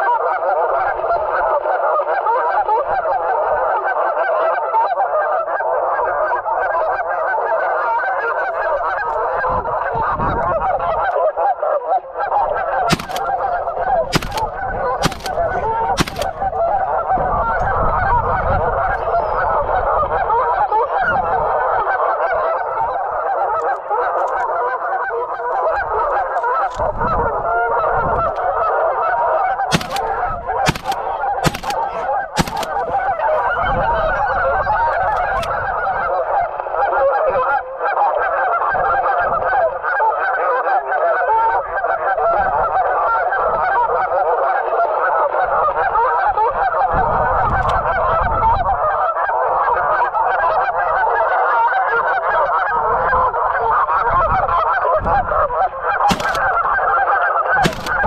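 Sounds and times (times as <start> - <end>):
geese honking: 0.0 - 58.0
sharp clicks: 12.9 - 16.7, 29.7 - 33.2, 56.1 - 56.6, 57.6 - 58.0.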